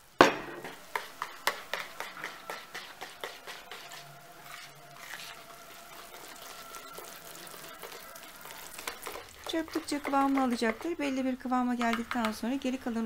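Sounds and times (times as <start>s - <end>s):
whisk swishing batter: 0.9s - 11.2s
whisk ticking against bowl: 0.9s - 11.2s, 11.8s - 12.6s.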